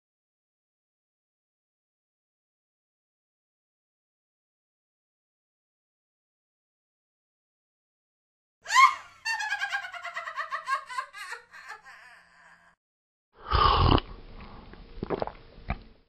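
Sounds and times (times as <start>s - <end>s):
high-pitched laugh: 8.7s - 12.8s.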